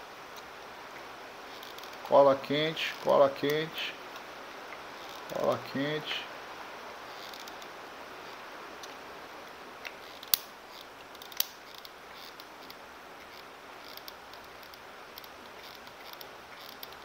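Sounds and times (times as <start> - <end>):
faint steady hiss: 0.0 - 17.0.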